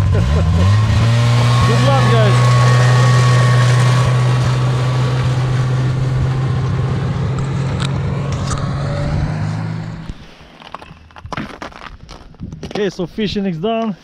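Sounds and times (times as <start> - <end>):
snowmobile engine running: 0.0 - 10.4.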